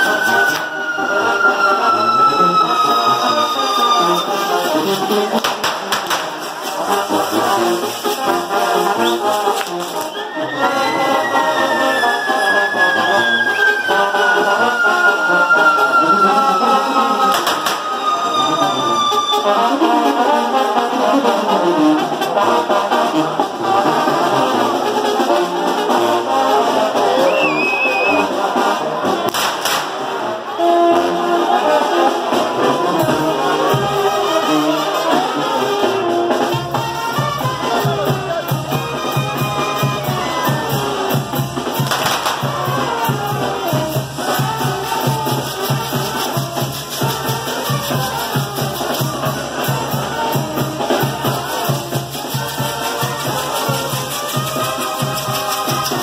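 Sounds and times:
fireworks crackling and popping: 0.0 - 1.3, 2.6 - 19.4, 29.2 - 30.3, 38.5 - 56.0
brass band music: 0.0 - 56.0.

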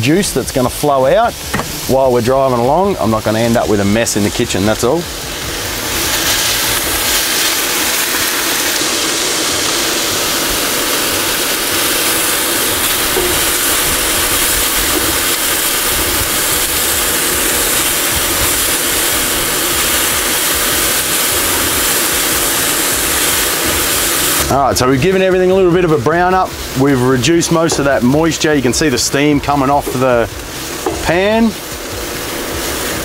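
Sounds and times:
vegetables sizzling in a pan: 0.0 - 33.0.

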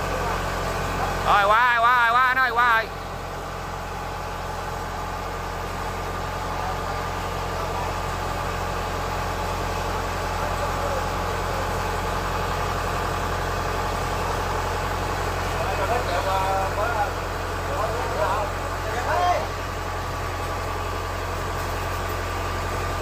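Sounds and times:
diesel engine idling: 0.0 - 23.0.

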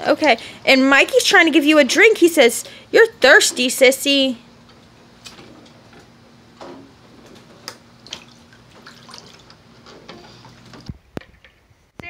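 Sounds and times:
water splashing in a pool: 8.0 - 9.8.

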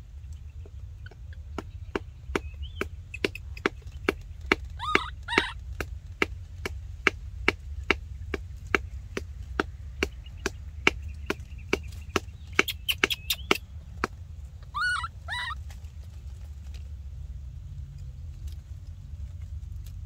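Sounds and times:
high squeaky calls: 0.5 - 5.8, 11.9 - 13.7, 14.6 - 15.7
rhythmic chopping: 1.0 - 13.6.

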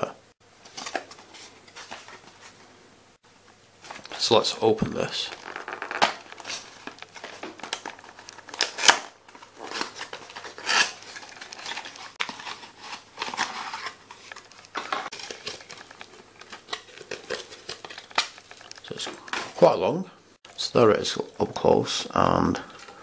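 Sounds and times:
cardboard rustling and scraping: 0.6 - 2.7, 3.8 - 19.7.

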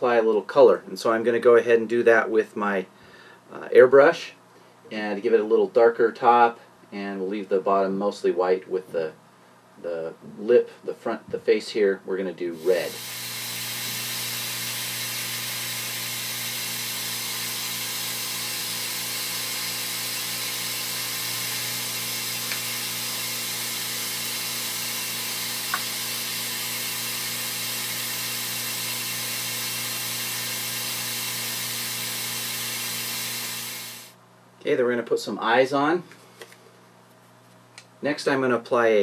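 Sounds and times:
airbrush hissing: 12.6 - 34.2
compressor motor hum: 12.6 - 34.2.

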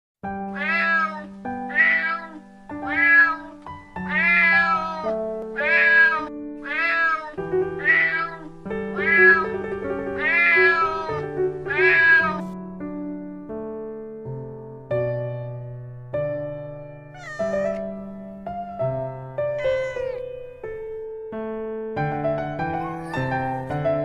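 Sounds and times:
cat meowing: 0.5 - 12.6, 17.1 - 17.9, 19.6 - 20.3, 22.7 - 23.7
keyboard music: 17.1 - 21.0, 22.1 - 23.8.

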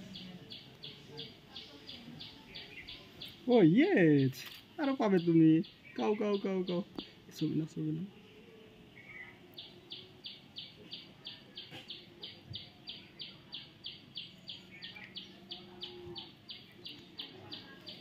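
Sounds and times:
faint low background sounds: 0.0 - 18.0.

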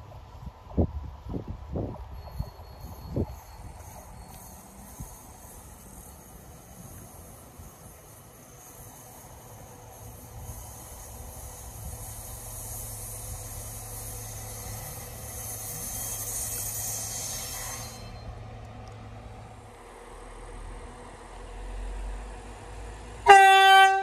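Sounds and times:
train engine hum: 0.0 - 24.0
high hiss: 2.2 - 18.5.

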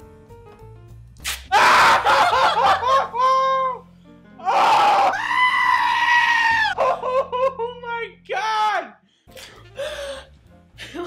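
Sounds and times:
man yelling: 7.8 - 9.0.

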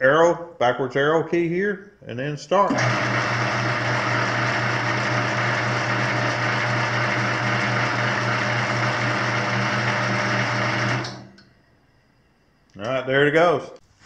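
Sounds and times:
motor humming: 2.7 - 11.5.

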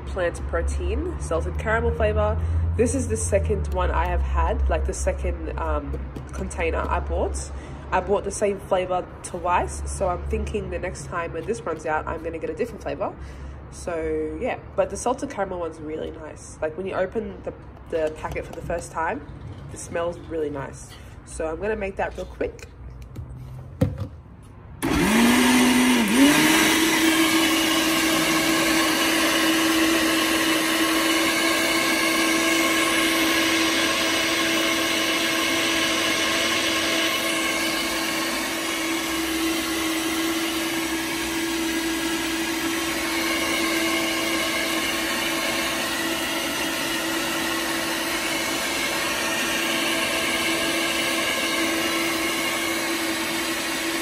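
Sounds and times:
blender running: 24.8 - 54.0.

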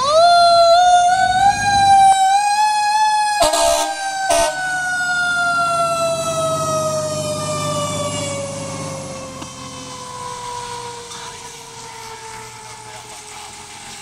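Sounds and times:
diesel engine rumbling: 0.0 - 14.0
siren with falling pitch: 0.0 - 14.0
truck horn blasts: 3.4 - 4.6.

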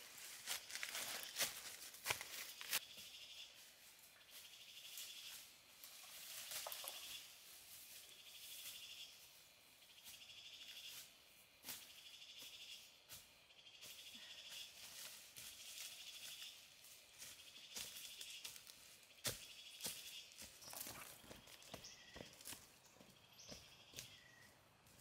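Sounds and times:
footsteps on dry leaf litter: 0.0 - 3.3, 13.9 - 24.3
insects trilling: 0.2 - 24.5.

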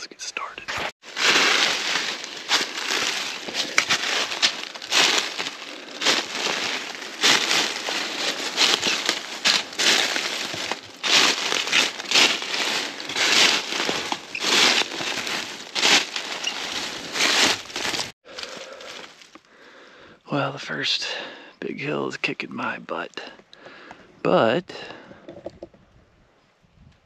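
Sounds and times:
footsteps crunching dry leaves: 1.0 - 19.3.

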